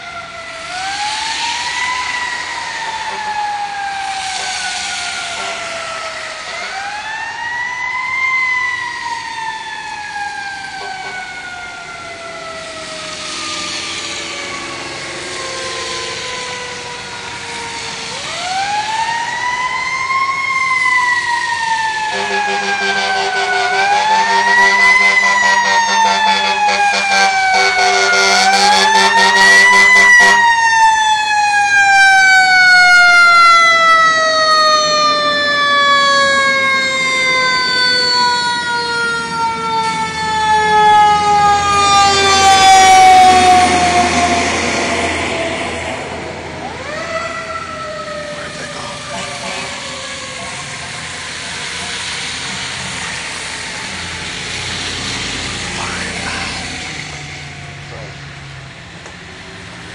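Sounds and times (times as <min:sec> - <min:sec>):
fire engine siren wailing: 0:00.0 - 0:59.9.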